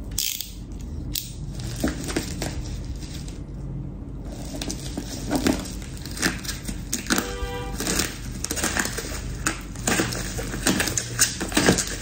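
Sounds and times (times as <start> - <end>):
bubble wrap crinkling: 4.2 - 12.0
box cutter cutting plastic: 5.4 - 12.0.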